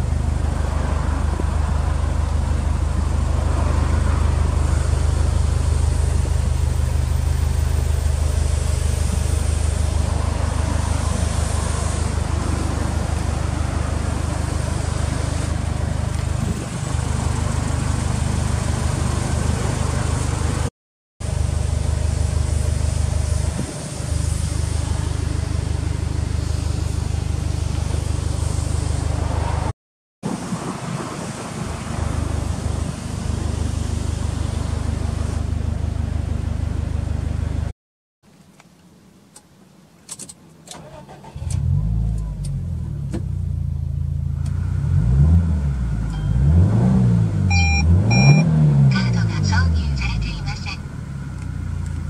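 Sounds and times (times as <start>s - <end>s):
car engine idling: 0.0s - 29.2s, 31.1s - 37.7s, 49.0s - 52.0s.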